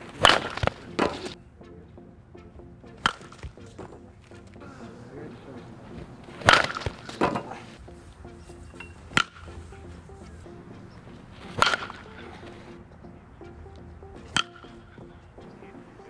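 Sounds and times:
bat striking ball: 0.0s - 1.4s, 2.9s - 4.0s, 5.8s - 7.8s, 8.8s - 9.6s, 11.1s - 12.7s, 14.2s - 15.0s
quiet background music: 0.0s - 16.0s.

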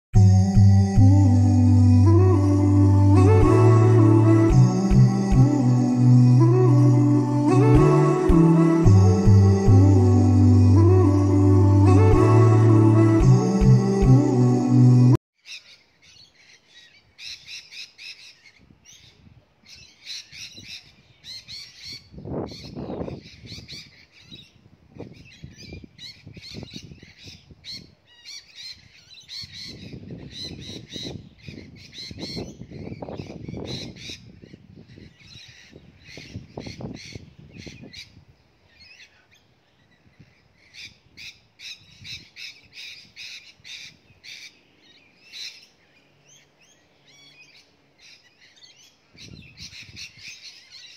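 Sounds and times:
small birds chirping: 15.4s - 50.9s.

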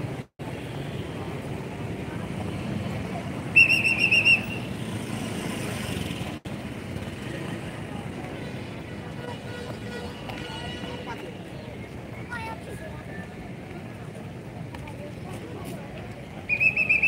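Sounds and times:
rumble of people and vehicles: 0.0s - 17.0s
shrill whistle blasts: 3.6s - 4.7s, 16.5s - 17.0s.

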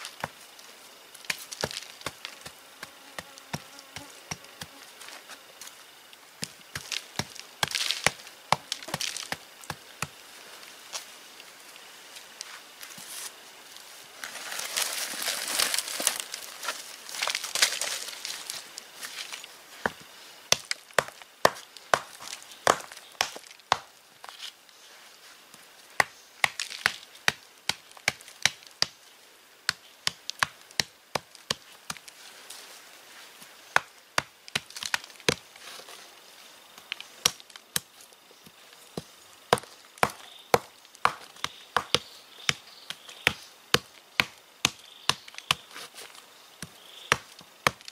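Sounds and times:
scraping dry soil: 6.4s - 11.1s, 12.1s - 20.0s, 45.0s - 47.9s
stone pounding clay on stone slab: 20.5s - 23.9s, 39.0s - 45.6s, 46.6s - 47.9s.

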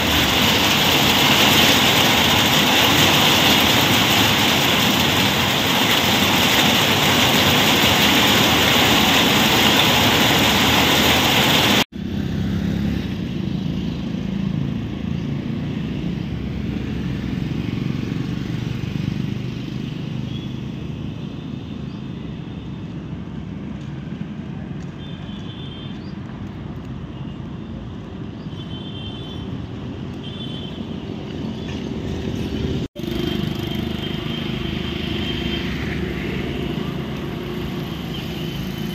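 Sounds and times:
heavy rain: 0.0s - 11.9s
passing motor vehicles rumbling: 0.0s - 25.0s, 30.9s - 38.9s.

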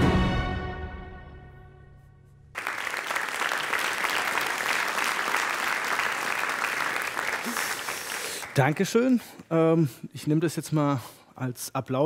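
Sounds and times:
audience applause: 2.6s - 9.4s.

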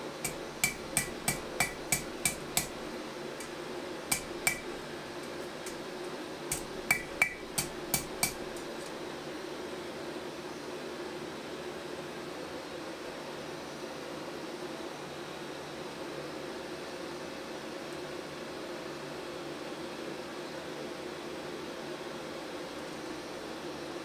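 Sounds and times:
hammer striking steel on anvil: 0.2s - 4.8s, 6.5s - 8.9s.

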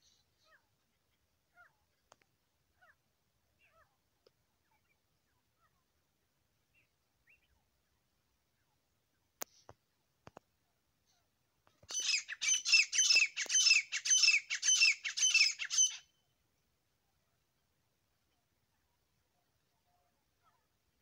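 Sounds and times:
faint clicks: 1.9s - 2.4s, 4.2s - 4.4s, 9.4s - 10.5s.

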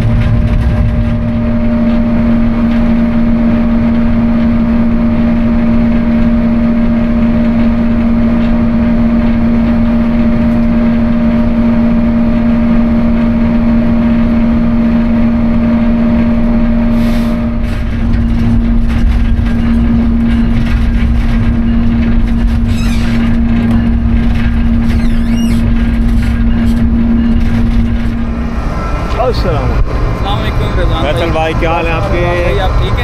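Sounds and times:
locomotive engine hum: 0.0s - 33.0s
wheels rumbling on rail: 0.0s - 33.0s
high metallic squeals: 16.7s - 33.0s.

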